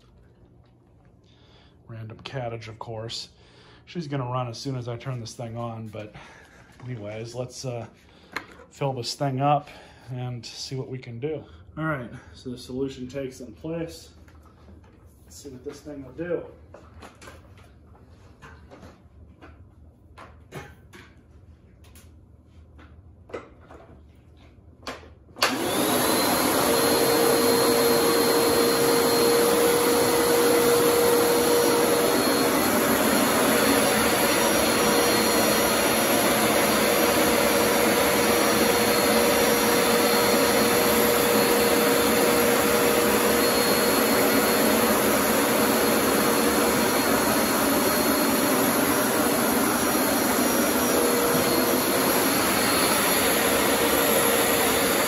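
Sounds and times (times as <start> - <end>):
carpet cleaner motor whining: 25.4 - 55.0.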